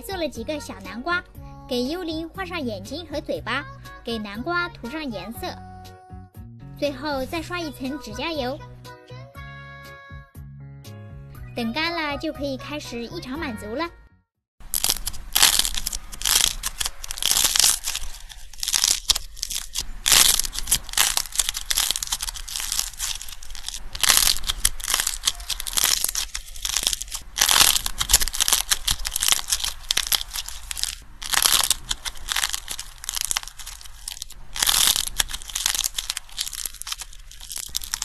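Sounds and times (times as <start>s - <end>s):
hard clay shell crunching: 14.6s - 38.0s.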